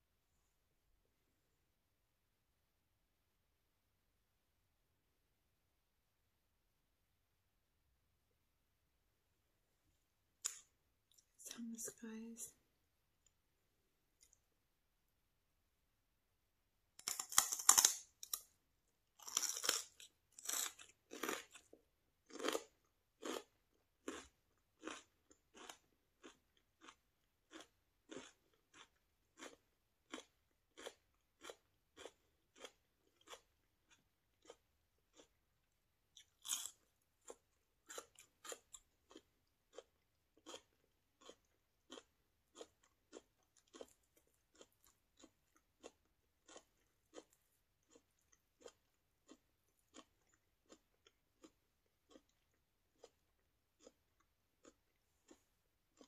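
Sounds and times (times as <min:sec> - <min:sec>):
celery crunching: 0:17.0 - 0:18.5, 0:19.2 - 0:21.7, 0:22.3 - 0:33.5, 0:36.1 - 0:54.0.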